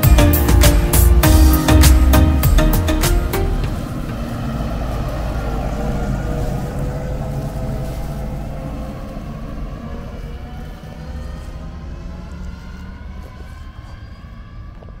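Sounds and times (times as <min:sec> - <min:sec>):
tractor diesel engine under load: 0:00.0 - 0:14.0
wagon wheels rumbling: 0:03.5 - 0:13.2.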